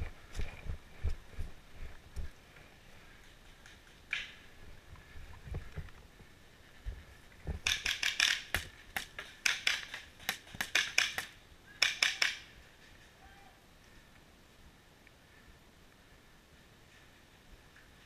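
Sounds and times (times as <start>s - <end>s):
paintball gun firing sharp cracks: 7.6s - 12.6s.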